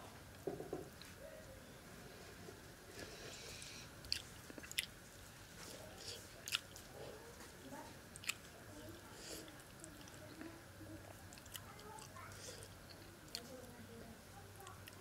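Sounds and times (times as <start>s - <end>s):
person chewing: 4.0s - 5.0s, 5.6s - 6.9s, 8.2s - 8.5s.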